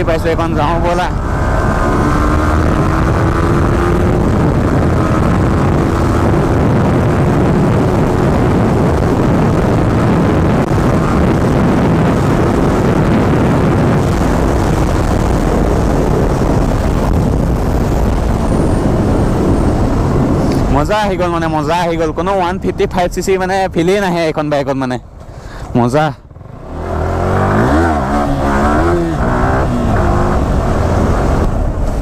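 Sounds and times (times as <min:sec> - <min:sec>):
motorcycle engine running hard: 0:00.0 - 0:20.7
wind rush on microphone: 0:00.0 - 0:32.0.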